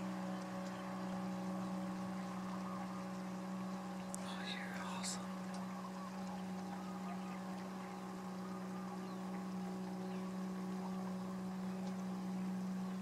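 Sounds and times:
steady low hum: 0:00.0 - 0:13.0
faint ticks: 0:00.3 - 0:00.9, 0:04.0 - 0:06.7.

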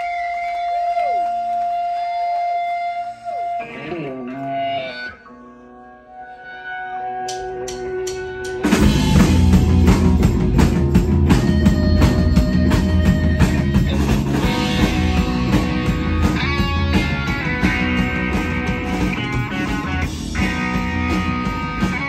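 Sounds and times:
live rock band: 0:00.0 - 0:22.0.

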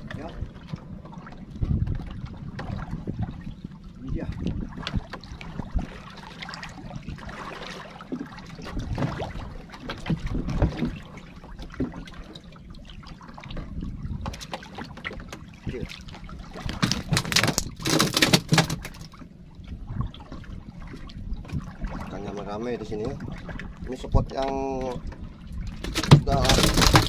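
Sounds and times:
water lapping against boat: 0:00.0 - 0:27.0
knocks on wooden hull: 0:25.8 - 0:27.0.

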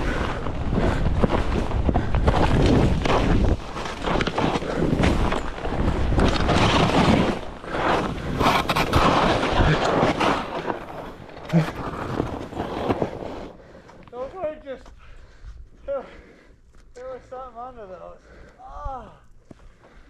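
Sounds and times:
wind buffeting microphone: 0:00.0 - 0:03.8
skis scraping over snow: 0:00.0 - 0:14.8.

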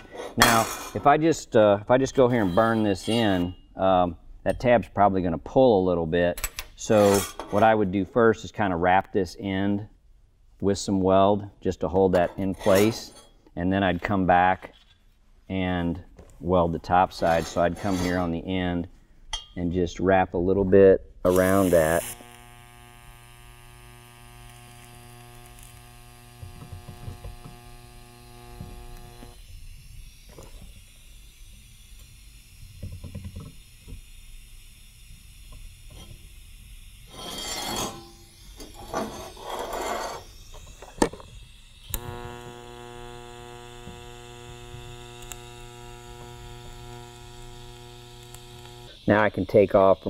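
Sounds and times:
welding arc buzzing: 0:02.1 - 0:03.6, 0:16.9 - 0:18.4, 0:21.2 - 0:50.0.

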